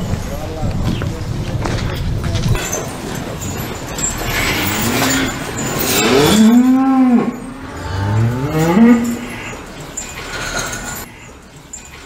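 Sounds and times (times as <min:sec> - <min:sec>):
cattle mooing: 0:04.2 - 0:09.7.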